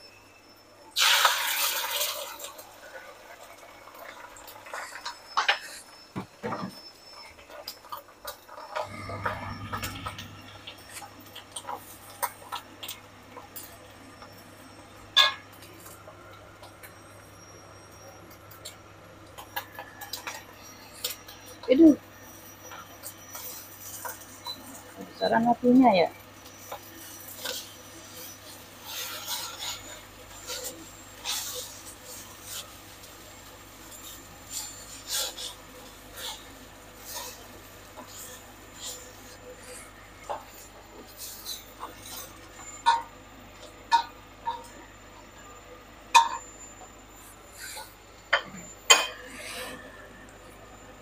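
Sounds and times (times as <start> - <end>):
egg frying in oil: 1.0 - 49.2
spatula scraping a wok: 22.6 - 25.2, 26.5 - 43.1.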